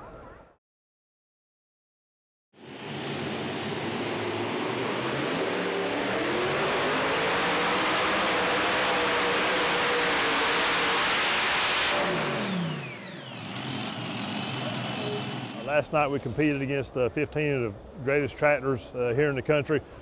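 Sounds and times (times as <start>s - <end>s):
tractor engines at full throttle: 2.6s - 16.7s.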